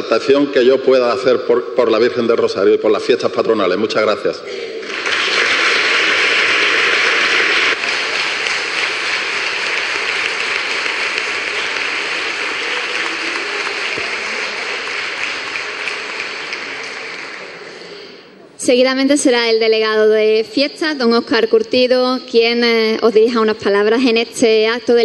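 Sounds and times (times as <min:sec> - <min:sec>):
audience applauding: 0:04.8 - 0:18.2.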